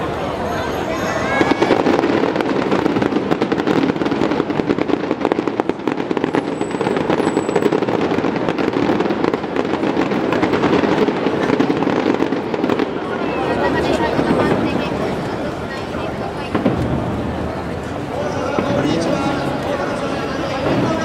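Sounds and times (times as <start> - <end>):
fireworks popping and crackling: 0.0 - 21.0.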